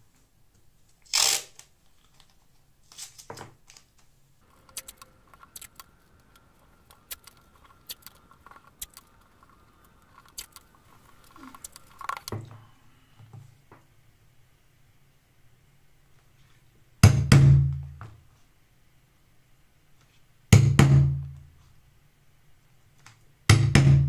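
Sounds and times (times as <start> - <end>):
masking tape ripping off roll: 1.0 - 1.7
tape crackling as pressed down: 1.0 - 12.5.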